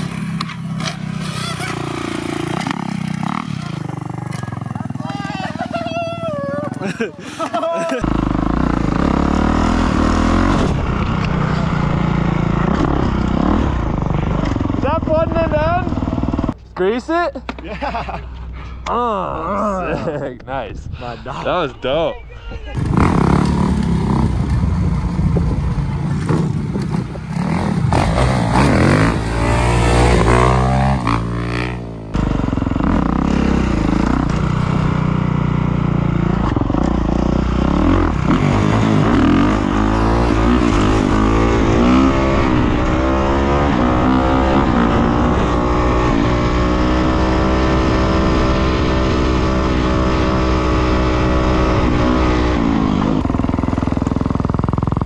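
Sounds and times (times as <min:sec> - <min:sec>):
dirt bike engine revving: 0:00.0 - 0:07.0, 0:08.0 - 0:16.6, 0:22.8 - 0:55.0.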